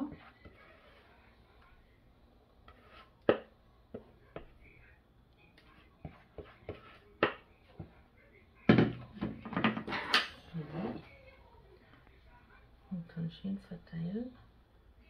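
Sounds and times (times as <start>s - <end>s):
spatula scraping plastic bowl: 0.0s - 1.1s, 2.7s - 3.2s, 5.7s - 7.1s
spatula tapping bowl: 2.7s - 4.6s, 5.6s - 7.9s.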